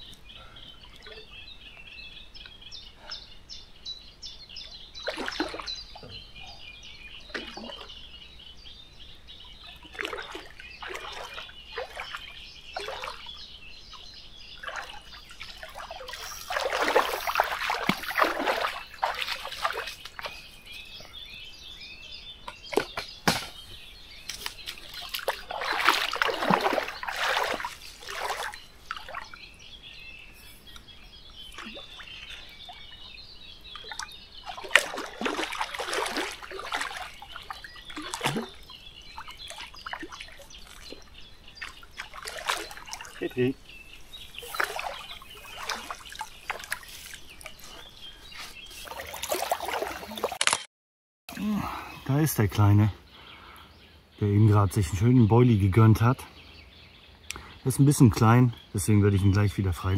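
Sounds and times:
birds chirping: 0:00.0 - 0:50.5, 0:51.3 - 0:59.9
water splashing: 0:05.0 - 0:06.2, 0:07.3 - 0:08.0, 0:09.6 - 0:20.9, 0:22.5 - 0:29.6, 0:31.3 - 0:50.6.

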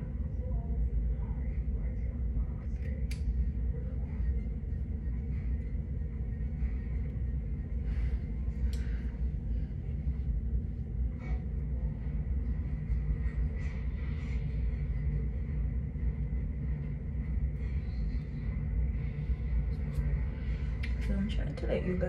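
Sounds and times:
low rumbling hum: 0:00.0 - 0:22.0.

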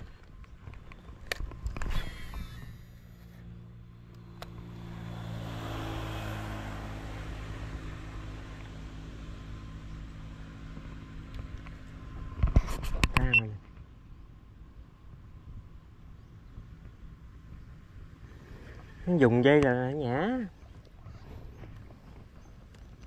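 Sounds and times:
small engine running: 0:01.9 - 0:11.8.

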